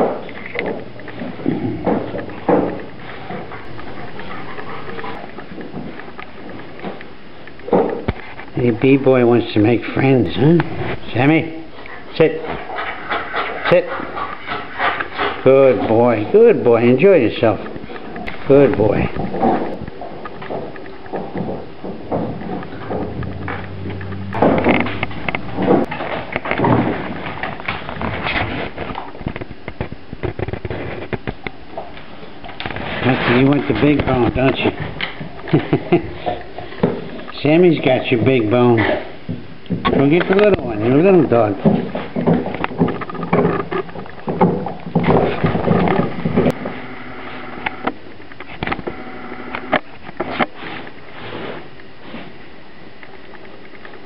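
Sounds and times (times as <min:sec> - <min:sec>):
sharp clicks and knocks: 0:19.1 - 0:31.9.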